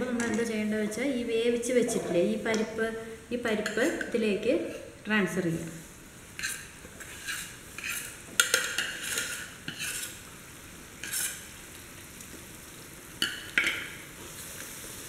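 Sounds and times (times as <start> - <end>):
faint sizzle: 0.0 - 15.0
metal spoon scraping a pot: 6.4 - 10.2, 11.0 - 11.4.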